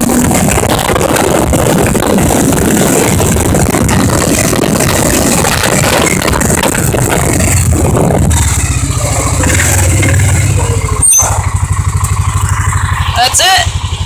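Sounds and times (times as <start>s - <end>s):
small engine throbbing: 0.0s - 14.0s
sharp knock with squeak: 11.0s - 11.4s.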